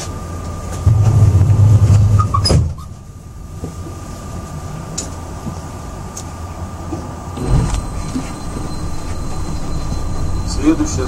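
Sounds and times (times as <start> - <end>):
train low hum: 0.0 - 11.0
train running noise: 0.0 - 11.0
faint high whine: 3.0 - 11.0.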